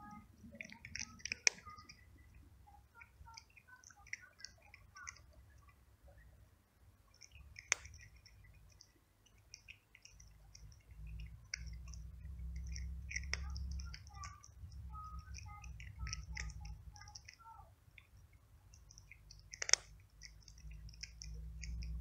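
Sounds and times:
cat crunching dry kibble: 0.0s - 2.3s, 3.4s - 5.3s, 7.1s - 17.4s, 18.7s - 22.0s
sharp click: 7.2s - 8.4s, 18.8s - 22.0s.

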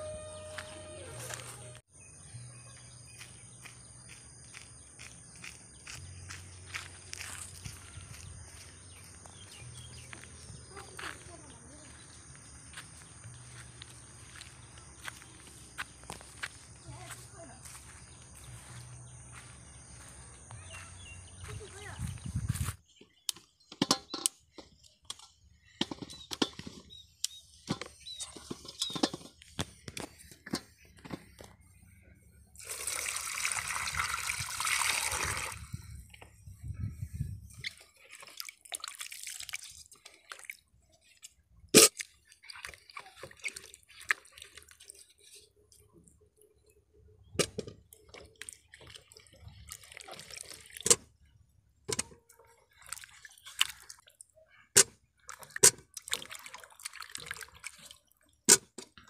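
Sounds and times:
water splashing and pouring: 32.6s - 35.8s, 37.5s - 45.5s, 47.9s - 51.1s, 52.4s - 54.4s, 55.2s - 58.7s.

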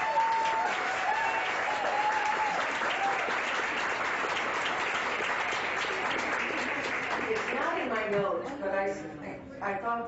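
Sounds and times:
whooping cheers: 0.0s - 3.5s
audience applauding: 0.0s - 8.2s.

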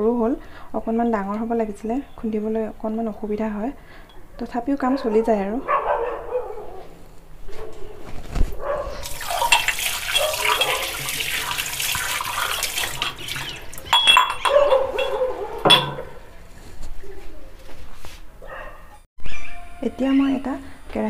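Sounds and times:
water running from a tap: 9.0s - 14.5s
sharp metal clinks: 13.8s - 16.2s.

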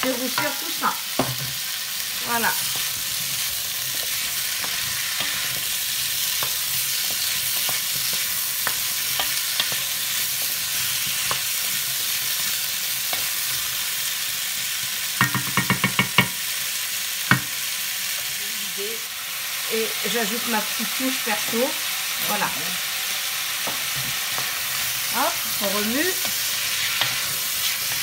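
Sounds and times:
food sizzling in a pot: 0.0s - 28.0s
wooden spoon tapping a pot: 15.2s - 16.4s, 17.3s - 17.5s.

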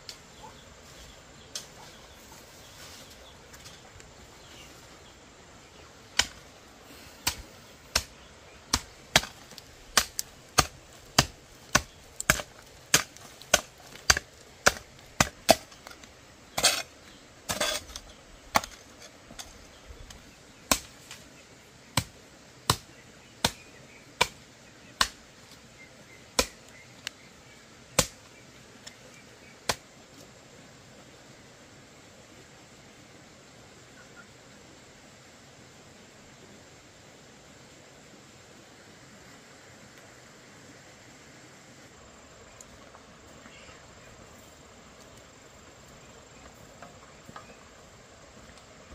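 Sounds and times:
hoe striking dry soil: 6.1s - 6.4s, 7.2s - 19.7s, 20.6s - 21.2s, 28.0s - 28.2s
hoe scraping soil: 8.7s - 19.8s.

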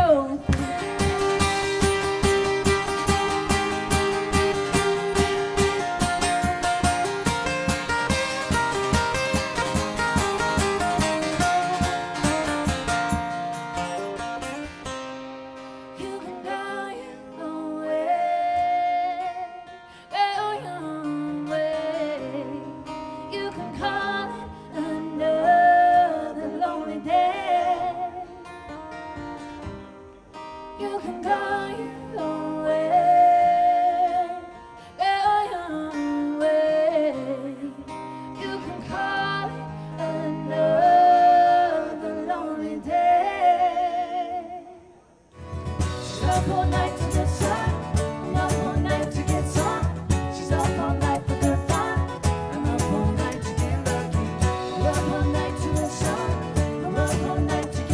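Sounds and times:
person singing: 0.0s - 14.6s, 30.8s - 44.8s, 45.8s - 57.9s
acoustic guitar: 0.0s - 57.9s
cajon beat: 0.4s - 14.7s, 45.4s - 57.9s.

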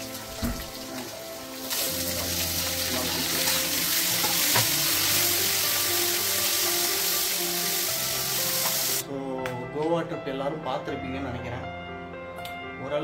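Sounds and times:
vegetables sizzling in oil: 0.0s - 9.0s.

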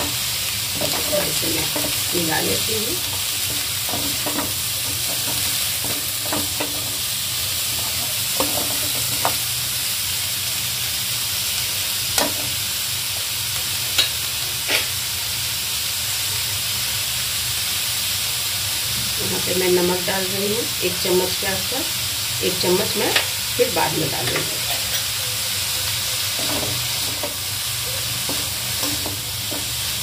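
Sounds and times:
vegetables sizzling in oil: 0.0s - 30.0s
metal spoon scraping pan: 0.8s - 7.0s, 26.3s - 29.7s.

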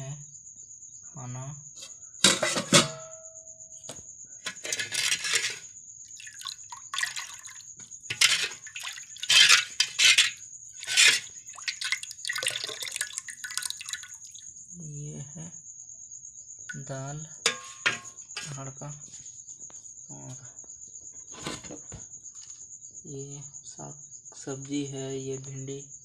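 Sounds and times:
pot lid clanking: 2.3s - 3.0s, 8.1s - 13.0s, 17.5s - 18.1s
ladle scraping and sloshing: 4.5s - 14.4s.

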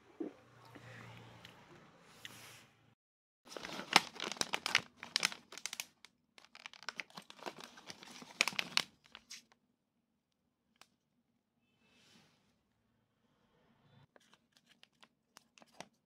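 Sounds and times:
plastic wrappers crinkling: 3.5s - 9.4s.

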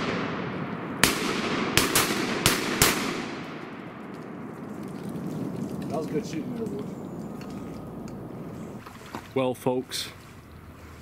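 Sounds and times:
shotgun shots echoing: 0.0s - 4.6s.

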